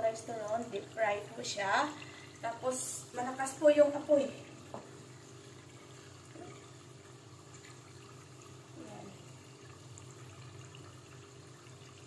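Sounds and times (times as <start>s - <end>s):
food deep-frying in hot oil: 0.0s - 12.0s.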